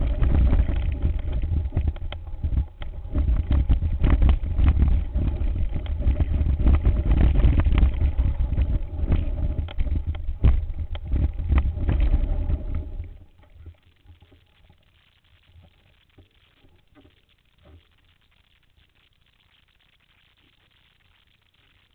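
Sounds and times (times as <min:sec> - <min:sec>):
wind rumble on microphone: 0:00.0 - 0:13.3
faint ticks: 0:00.0 - 0:21.9.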